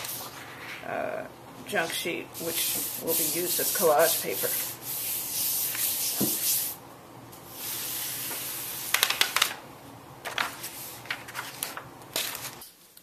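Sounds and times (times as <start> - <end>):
hand rubbing paper: 2.4 - 6.8
paper rustling: 10.2 - 12.8.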